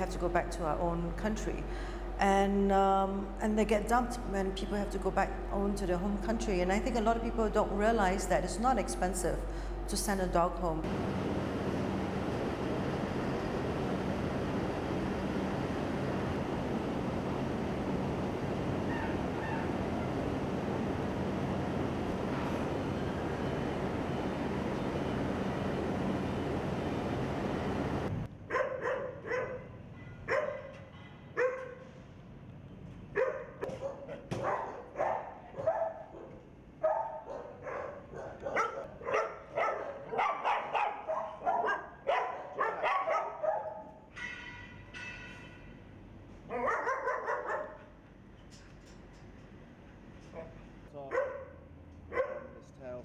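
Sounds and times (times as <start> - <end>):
dogs barking: 28.5 - 29.7, 30.3 - 30.8, 31.4 - 31.8, 33.2 - 44.0, 46.5 - 47.8, 51.1 - 52.6.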